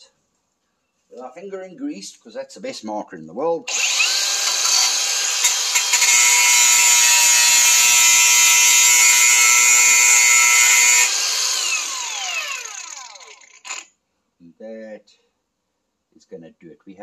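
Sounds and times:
angle grinder grinding steel: 3.7 - 13.9.

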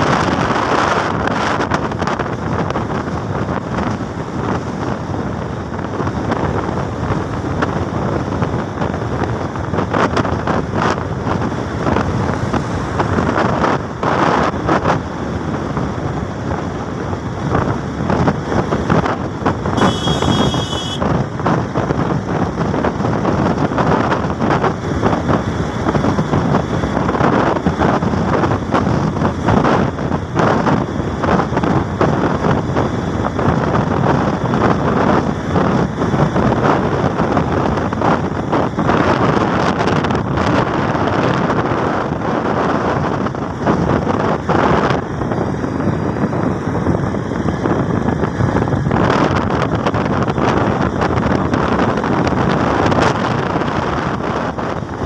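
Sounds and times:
road and engine noise: 0.0 - 55.0
wind buffeting microphone: 0.0 - 55.0
short high-pitched tone: 19.8 - 21.0.

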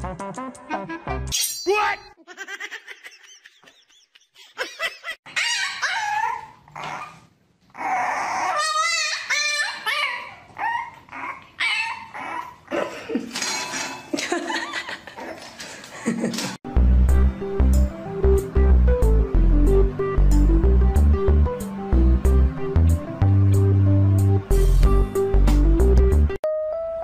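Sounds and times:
puppy yipping and barking: 5.3 - 12.6.

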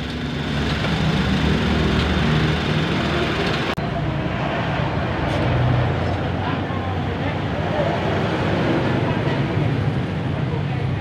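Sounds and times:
car engine idling: 0.0 - 3.8.

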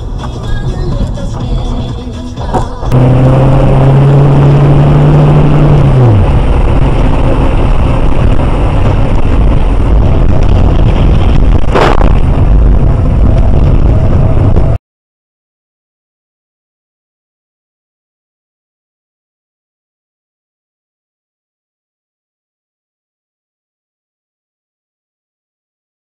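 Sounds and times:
car engine and road noise: 0.0 - 14.8.

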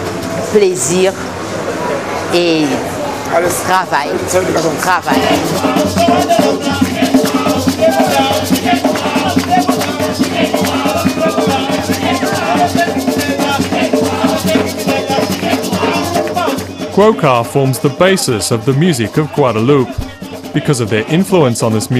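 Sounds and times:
voices singing: 2.7 - 21.9
hand drums: 4.6 - 21.9
shaker rattling: 5.0 - 21.9.

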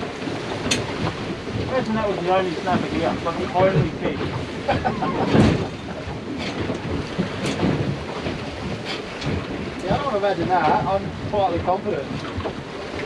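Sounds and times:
sea washing against boat hull: 0.0 - 13.0
wind buffeting microphone: 0.0 - 13.0
heavy low thump: 2.7 - 12.5
sharp knocks: 6.4 - 10.0.

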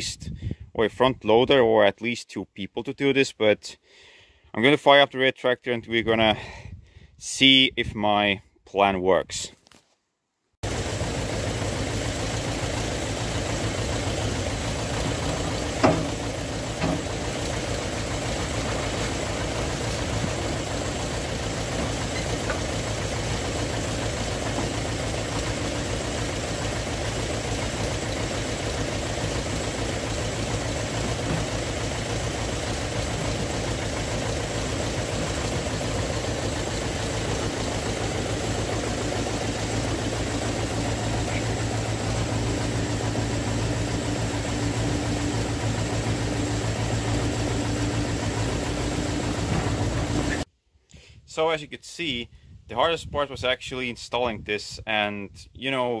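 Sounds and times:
tractor engine idling: 10.6 - 50.5.

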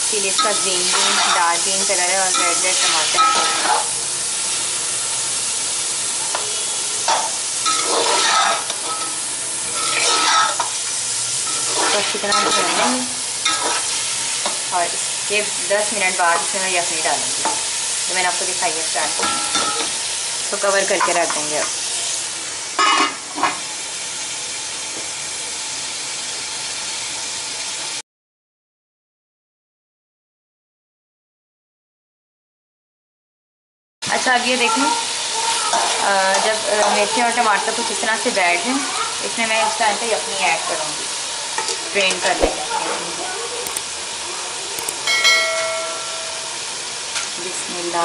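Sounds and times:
meat sizzling in hot oil: 0.0 - 28.0, 34.0 - 48.0
metal spoon scraping a pot: 0.4 - 1.5, 2.3 - 3.8, 7.6 - 9.1, 9.8 - 10.7, 11.5 - 12.9
metal lid clink: 44.8 - 46.5.

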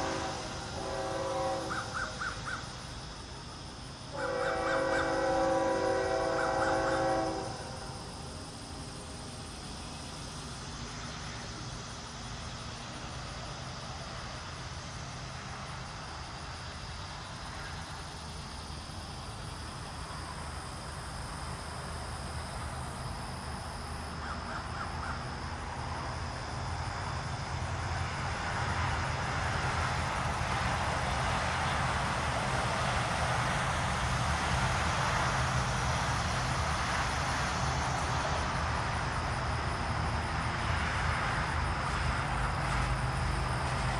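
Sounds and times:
distant freight train rumble: 0.0 - 43.9
locomotive engine hum: 0.0 - 43.9.

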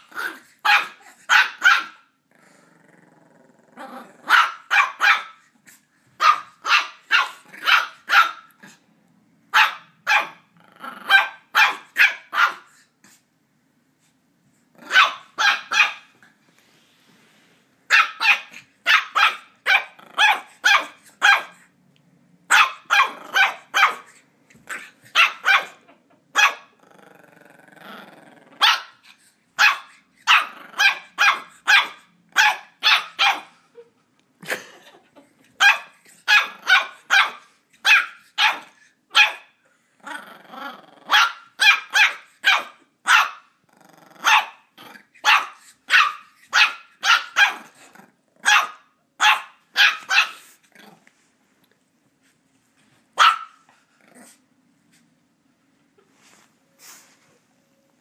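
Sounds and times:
puppy barking: 0.0 - 2.1, 4.2 - 5.5, 6.2 - 8.7, 9.5 - 12.8, 14.8 - 16.2, 17.9 - 21.6, 22.5 - 26.8, 28.6 - 33.6, 35.6 - 39.6, 41.1 - 43.5, 44.2 - 47.8, 48.4 - 50.5, 53.2 - 53.6
puppy growling: 2.3 - 4.4, 10.5 - 11.2, 19.8 - 20.5, 25.8 - 28.7, 30.4 - 31.1, 40.0 - 41.2, 43.6 - 45.2, 47.5 - 48.5, 50.4 - 51.1, 53.9 - 54.5.

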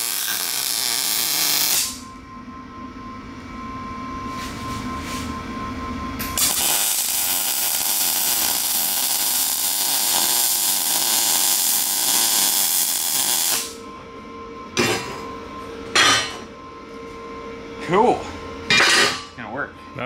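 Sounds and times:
welder arc crackling: 0.0 - 2.0, 6.4 - 13.8.

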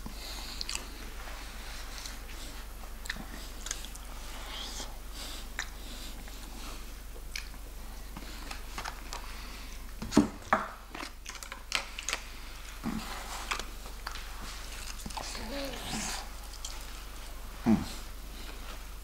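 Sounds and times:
person chewing crispy fried chicken: 0.5 - 0.9, 10.9 - 17.3.

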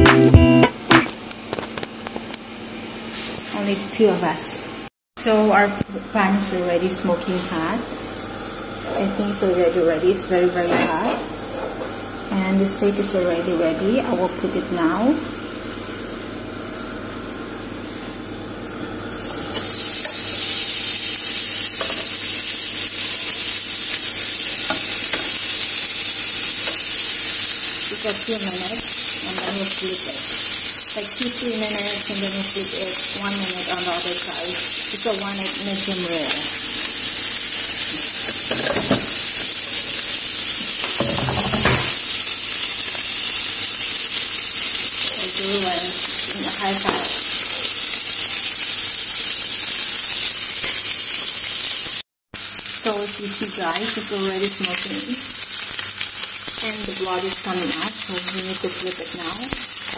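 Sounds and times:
steak sizzling in grill pan: 17.3 - 59.9.

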